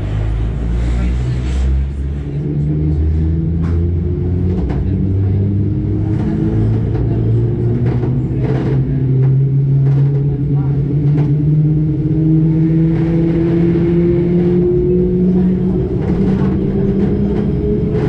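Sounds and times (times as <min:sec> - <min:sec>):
low train rumble: 0:00.0 - 0:18.0
train traction motors humming: 0:00.0 - 0:18.0.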